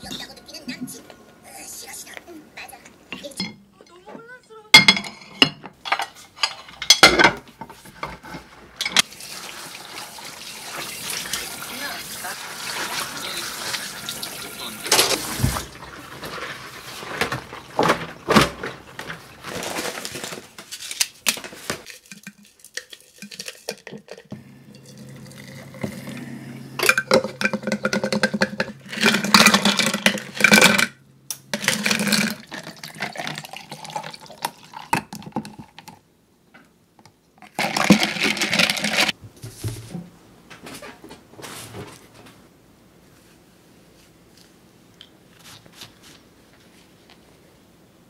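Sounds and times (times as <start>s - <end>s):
hot water pouring into glass jar: 9.0s - 18.0s, 22.1s - 26.0s, 31.6s - 35.8s
running water: 9.0s - 19.6s.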